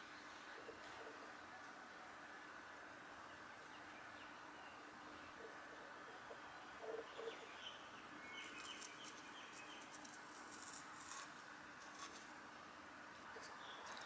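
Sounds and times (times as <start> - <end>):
bird cooing: 0.6 - 1.3, 5.4 - 7.6
bird chirps: 6.3 - 10.0
dry flower stalks rustling: 8.4 - 12.4.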